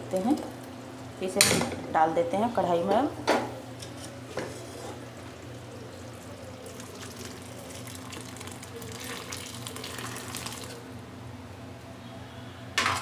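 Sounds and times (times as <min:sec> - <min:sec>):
thick liquid pouring and splashing: 0:06.6 - 0:10.8.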